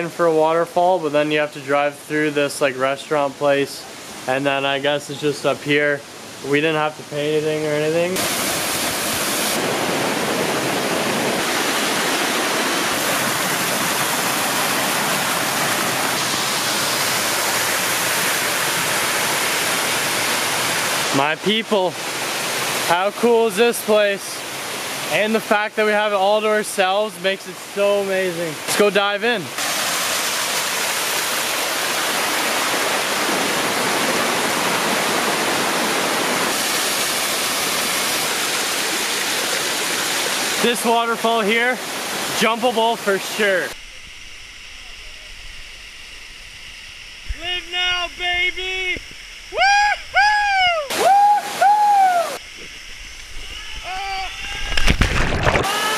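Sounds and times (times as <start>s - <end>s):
waterfall rushing: 8.2s - 25.5s, 26.1s - 43.8s, 50.3s - 52.4s.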